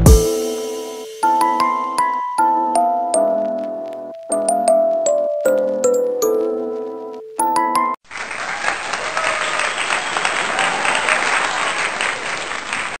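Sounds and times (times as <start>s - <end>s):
bright jingle notes: 0.0s - 8.0s
applause: 8.0s - 13.0s.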